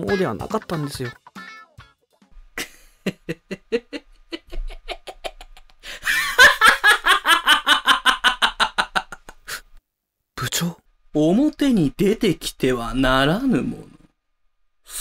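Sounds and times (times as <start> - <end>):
person laughing: 2.6 - 9.6.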